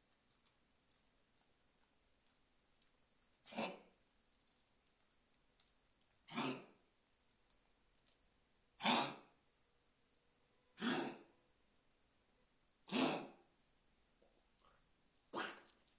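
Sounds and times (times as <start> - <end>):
puppy coughing: 3.4 - 3.9, 6.3 - 6.8, 8.8 - 9.3, 10.8 - 11.3, 12.9 - 13.4, 15.3 - 15.8.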